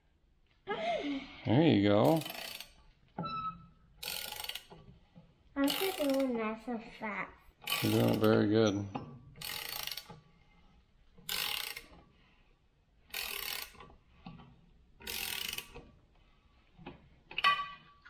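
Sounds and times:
socket ratchet clicking: 2.1s - 2.8s, 11.3s - 11.9s, 15.0s - 15.8s.

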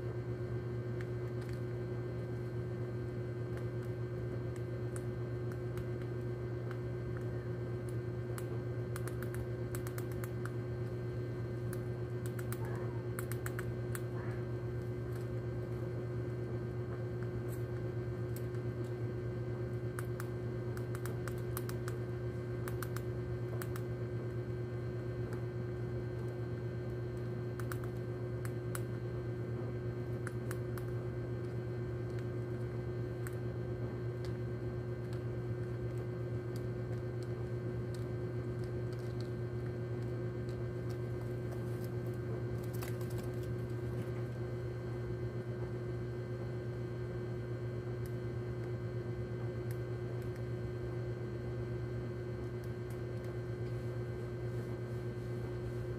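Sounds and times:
low electrical hum: 0.0s - 55.9s
faint clicks and ticks: 3.5s - 10.9s, 26.1s - 28.9s.

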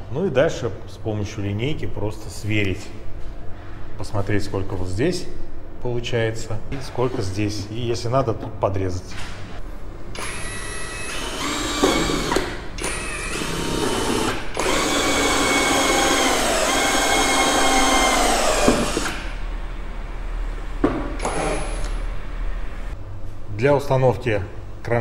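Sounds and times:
cordless drill motor whining: 10.2s - 19.3s.

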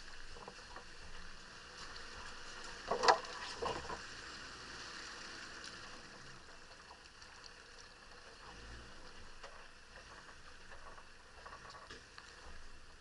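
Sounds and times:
vehicle low rush: 0.0s - 13.0s
wheels splashing through stream: 0.0s - 13.0s.

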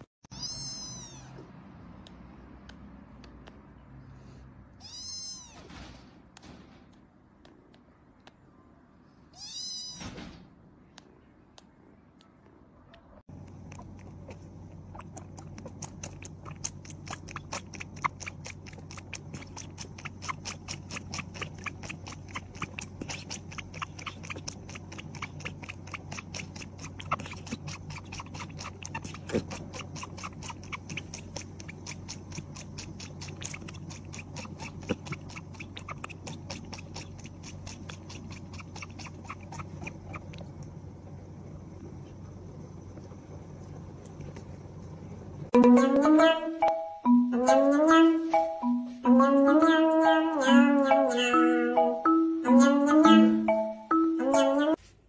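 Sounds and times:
faint low hum: 0.3s - 55.0s
cat sucking from bottle: 13.3s - 44.6s.

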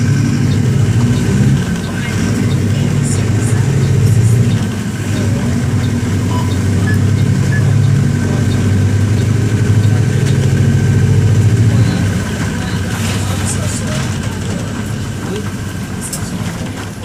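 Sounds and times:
diesel bus engine running: 0.0s - 17.0s.

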